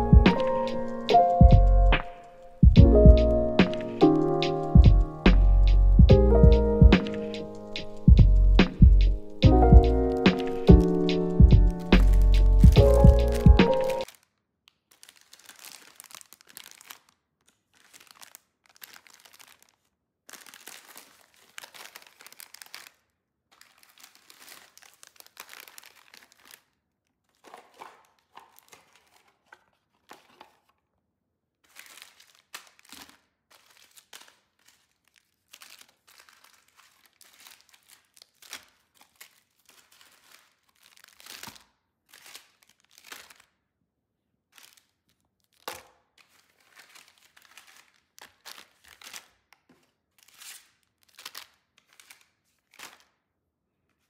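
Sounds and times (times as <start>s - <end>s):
plastic wrappers crinkling: 0.0s - 1.4s, 3.3s - 30.9s, 31.6s - 43.7s, 44.5s - 53.2s.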